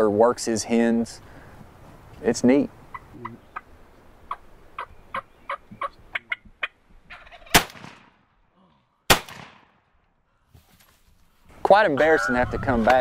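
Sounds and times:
turkey calling: 2.8s - 7.6s, 11.8s - 13.0s
shotgun blasts: 7.5s - 8.2s, 9.1s - 9.8s.

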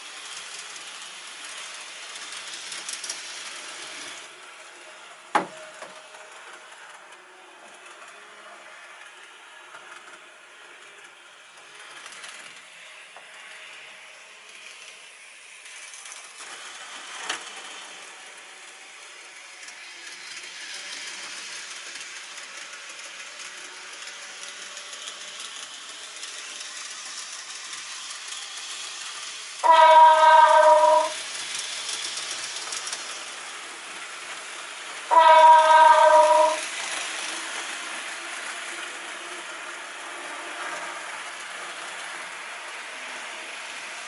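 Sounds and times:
model train rolling on track: 0.0s - 44.0s
train horn: 29.6s - 31.2s, 35.1s - 36.6s.

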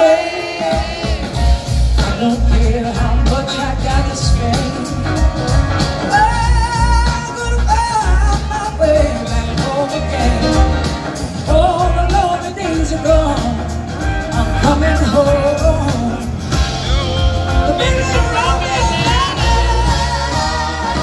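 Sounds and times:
woman singing: 0.0s - 5.3s, 6.1s - 16.3s, 17.7s - 21.0s
live blues-rock band: 0.0s - 21.0s.

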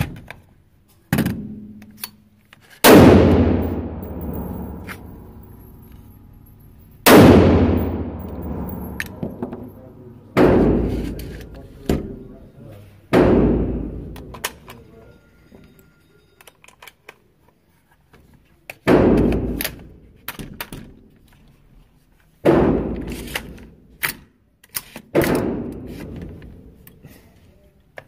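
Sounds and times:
rifle shots echoing: 2.8s - 11.4s.

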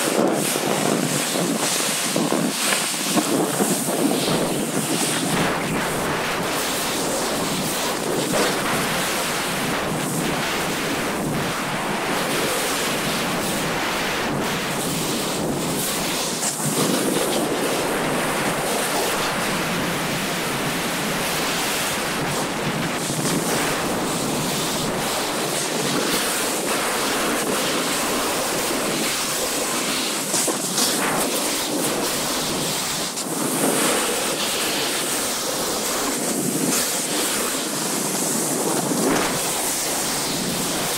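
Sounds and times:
skis sliding on snow: 0.0s - 40.9s
wind on microphone: 0.0s - 40.9s.

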